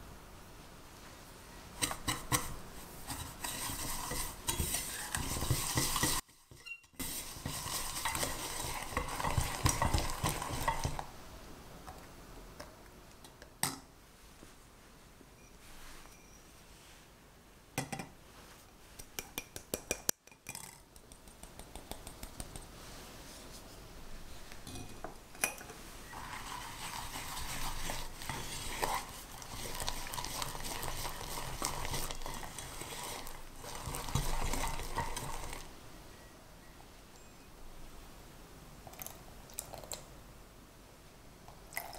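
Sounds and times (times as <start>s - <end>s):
whisk scraping a saucepan: 1.8s - 11.1s, 26.0s - 35.7s.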